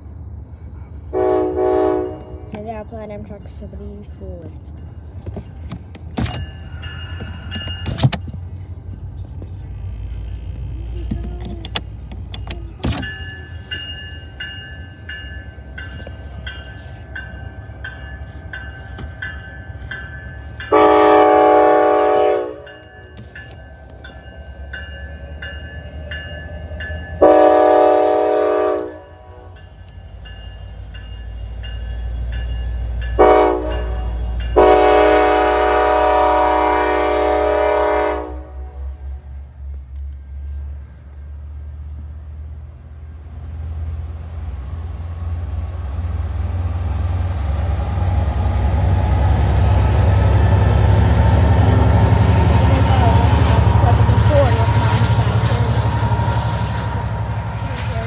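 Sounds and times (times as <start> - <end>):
train rumbling past: 0.0 - 58.0
train air horn blasts: 1.1 - 2.5, 20.7 - 22.7, 27.2 - 29.5, 33.2 - 38.8.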